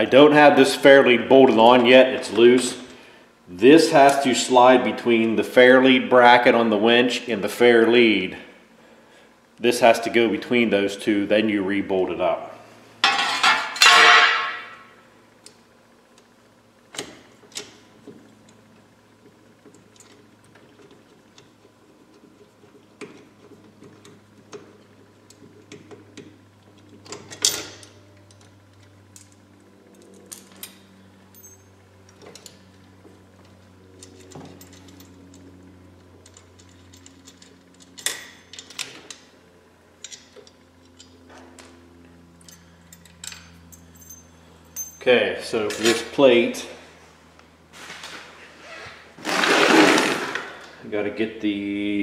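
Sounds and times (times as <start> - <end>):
metal clank: 13.0 - 14.9.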